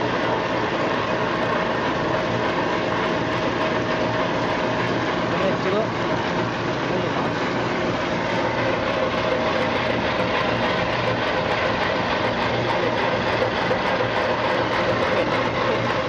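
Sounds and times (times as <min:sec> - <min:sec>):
motor hum: 0:00.0 - 0:16.0.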